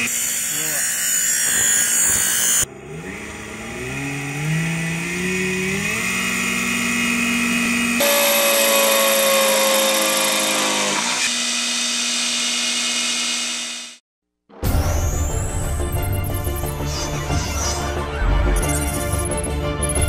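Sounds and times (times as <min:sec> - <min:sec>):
drill press motor whine: 0:02.6 - 0:14.0
drilling into wood: 0:03.0 - 0:14.0.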